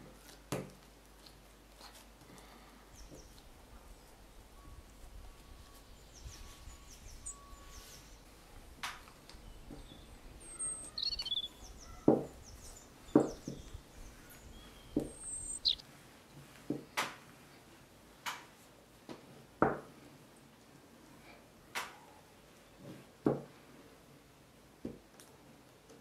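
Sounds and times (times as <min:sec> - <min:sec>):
birds chirping: 0:02.8 - 0:15.8
short irregular knocks: 0:13.1 - 0:13.8.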